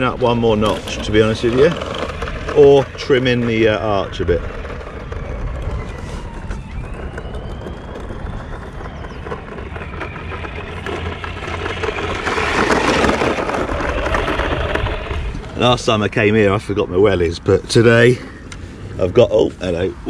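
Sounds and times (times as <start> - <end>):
rc truck motor whining: 0.0 - 16.0
wind on microphone: 0.0 - 16.6.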